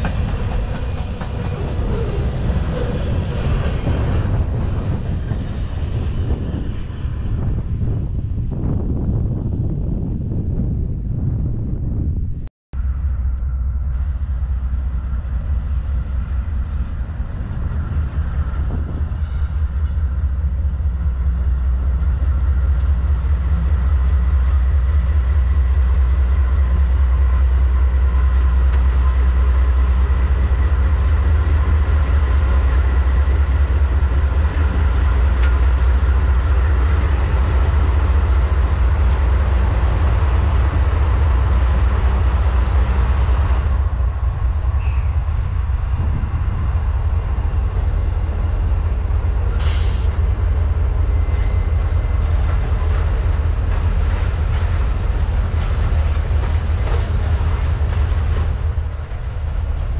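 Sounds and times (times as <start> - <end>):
train cars rolling on rails: 0.0 - 10.7, 12.8 - 59.9
diesel locomotives rumbling: 0.0 - 59.9.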